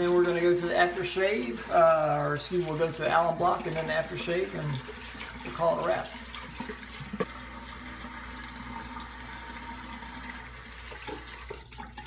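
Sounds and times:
water splashes: 0:00.0 - 0:12.0
tap running into a sink: 0:08.1 - 0:12.0.

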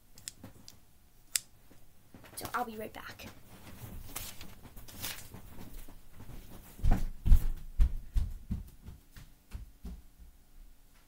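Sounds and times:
footsteps thudding on floor: 0:05.6 - 0:10.3.

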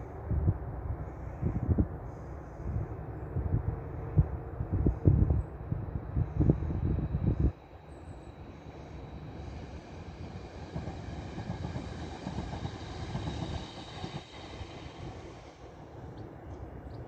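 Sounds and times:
train wheels rumbling on rail: 0:00.0 - 0:17.0
faint high whine: 0:04.8 - 0:17.0.

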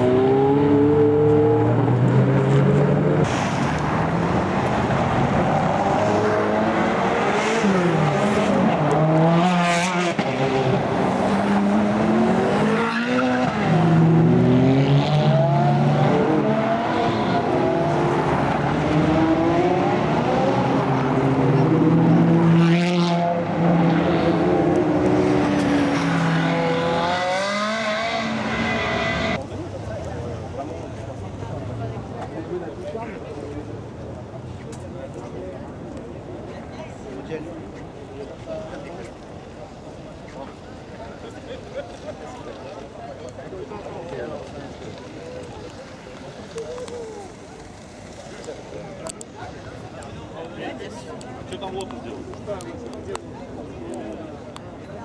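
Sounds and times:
sports car engines revving: 0:00.0 - 0:32.5.

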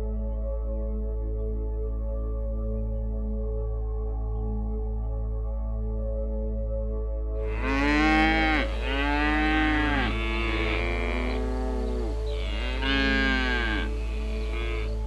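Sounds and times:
soft ambient music: 0:00.0 - 0:15.0
water buffalo mooing: 0:07.4 - 0:15.0.

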